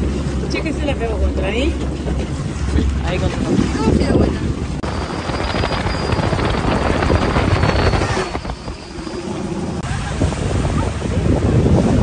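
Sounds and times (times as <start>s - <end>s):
speedboat jet-like rush: 0.0s - 12.0s
high turbine whine: 4.8s - 10.0s.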